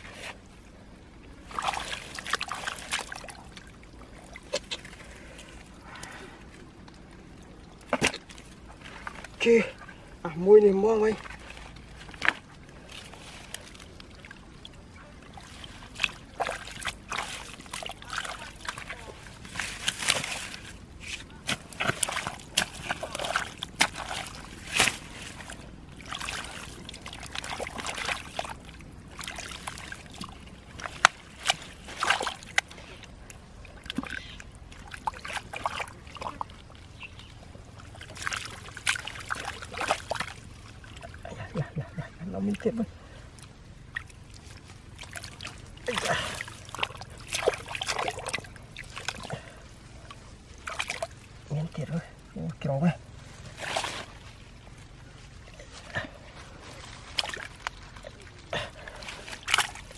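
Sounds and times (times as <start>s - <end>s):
hands splashing in muddy water: 1.4s - 3.7s, 15.3s - 36.7s, 37.9s - 42.1s, 43.9s - 49.6s, 50.6s - 51.2s, 53.4s - 54.4s, 55.6s - 59.9s.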